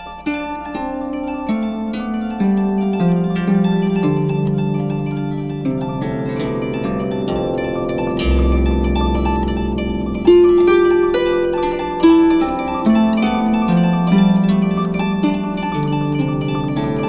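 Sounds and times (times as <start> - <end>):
plucked harp notes: 2.3 - 17.0
sustained low bass notes: 7.2 - 13.8.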